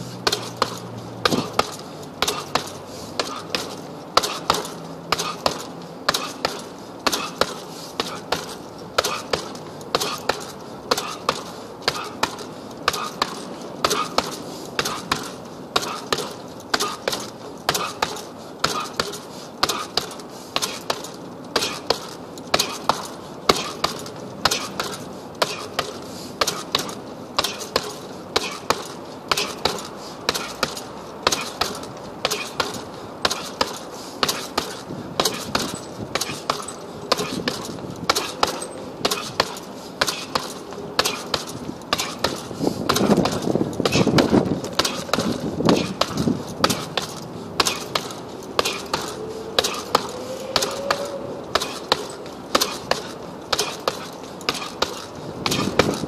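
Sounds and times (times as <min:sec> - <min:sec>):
punches hitting heavy bag: 0:00.2 - 0:56.0.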